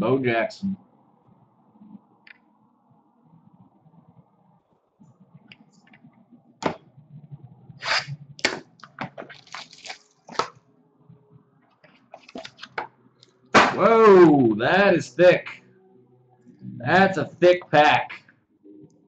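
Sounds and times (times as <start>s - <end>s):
wrapping and cardboard crinkling: 9.2s - 10.4s.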